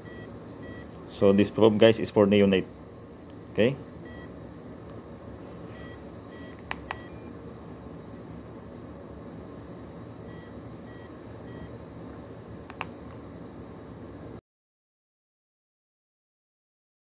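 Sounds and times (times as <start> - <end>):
low room hum: 0.0 - 14.4
short high beeps: 4.1 - 4.3.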